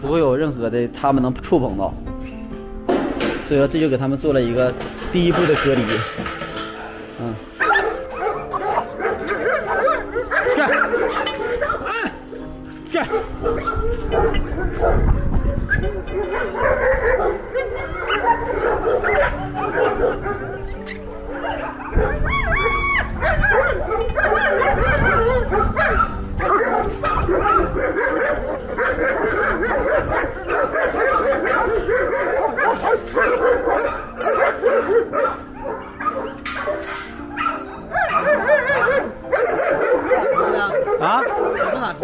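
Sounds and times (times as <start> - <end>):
many dogs barking and whining: 3.6 - 42.0.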